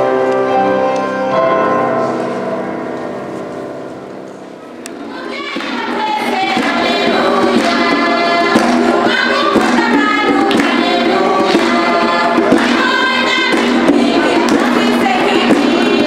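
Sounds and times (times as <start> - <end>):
choir singing: 4.9 - 16.0.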